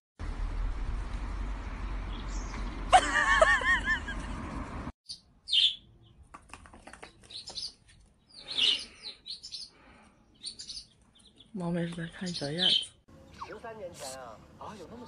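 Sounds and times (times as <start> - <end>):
outdoor rumble: 0.2 - 4.9
small birds chirping: 1.9 - 2.9, 5.1 - 15.0.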